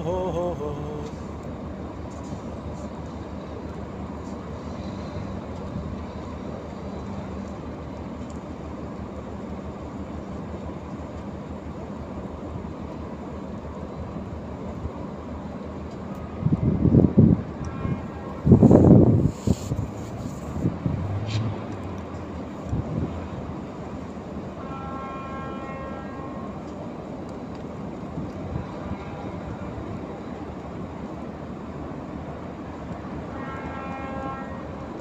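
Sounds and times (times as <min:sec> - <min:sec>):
diesel machinery rumbling: 0:00.0 - 0:24.7.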